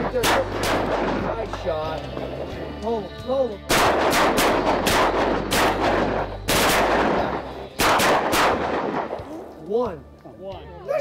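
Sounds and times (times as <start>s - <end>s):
shotgun shots echoing: 0.0s - 2.3s, 3.7s - 9.3s.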